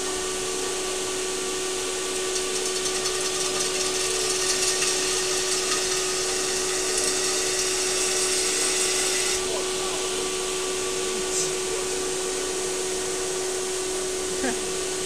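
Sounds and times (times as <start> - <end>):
lathe humming: 0.0 - 15.0
cutting tool scraping metal: 2.2 - 9.5.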